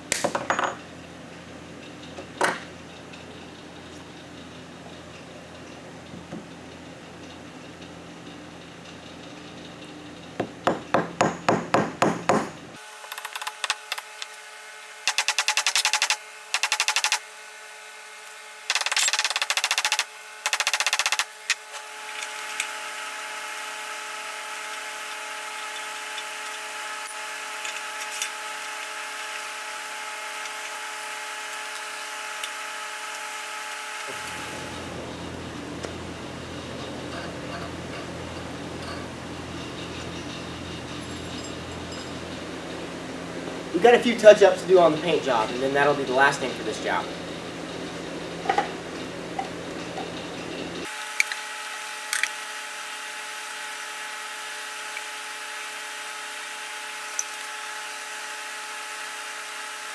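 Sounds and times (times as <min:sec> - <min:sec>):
steady hum: 0:10.5 - 0:52.2
hammer striking steel rod: 0:10.7 - 0:12.6.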